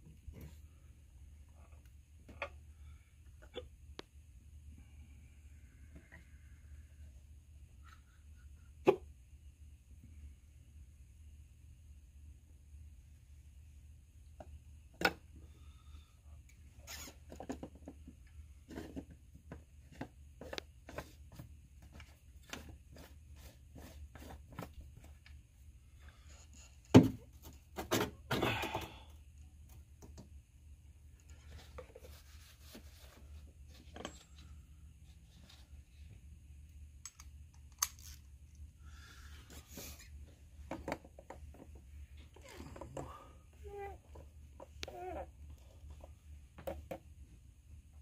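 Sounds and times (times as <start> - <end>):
faint low hum: 0.0 - 48.0
parts clicking and tapping: 37.0 - 38.0.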